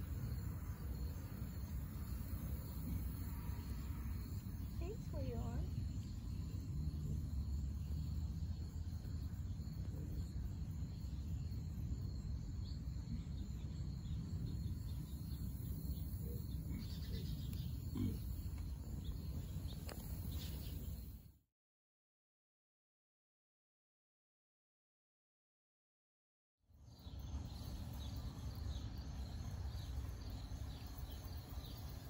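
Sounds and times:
pigs grunting: 2.7s - 3.3s, 16.2s - 18.7s.

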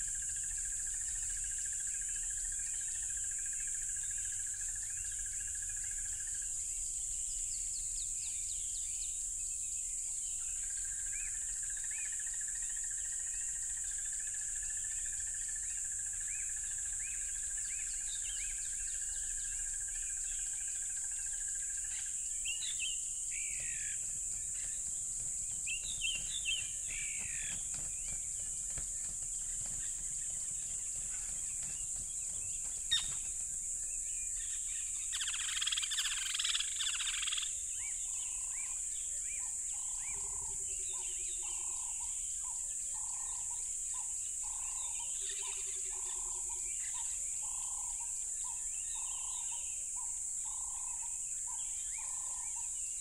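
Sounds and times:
crickets trilling: 0.0s - 53.0s
birds chirping: 16.4s - 49.8s.

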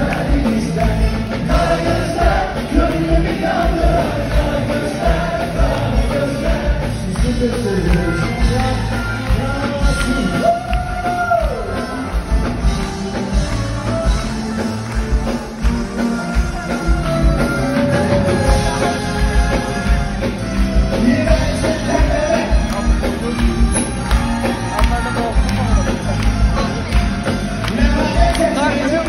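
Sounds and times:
live rock band playing: 0.0s - 29.0s
person singing: 16.7s - 26.9s.

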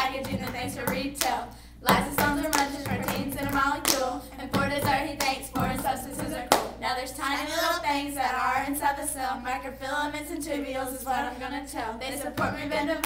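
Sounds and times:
people clapping hands: 0.0s - 6.8s
girls rapping: 0.0s - 13.0s.

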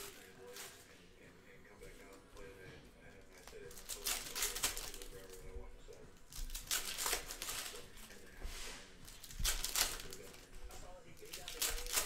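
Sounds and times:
plastic wrappers crinkling and tearing: 0.0s - 1.0s, 3.2s - 8.4s, 9.0s - 10.5s, 11.2s - 12.0s.

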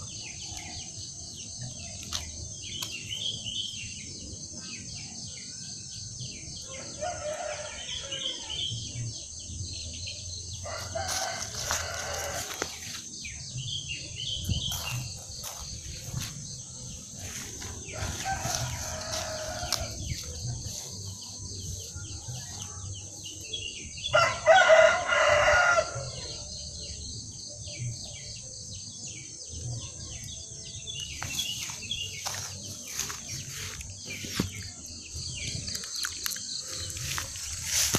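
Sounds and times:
rooster crowing: 6.7s - 8.6s, 10.6s - 12.8s, 17.6s - 20.4s, 24.1s - 26.2s.

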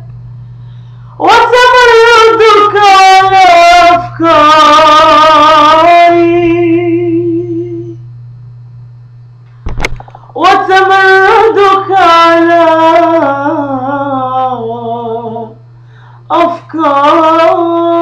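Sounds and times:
low steady hum: 0.0s - 18.0s
woman singing with vibrato: 1.2s - 8.0s, 10.4s - 15.6s, 16.3s - 18.0s
brief click: 9.4s - 10.2s.

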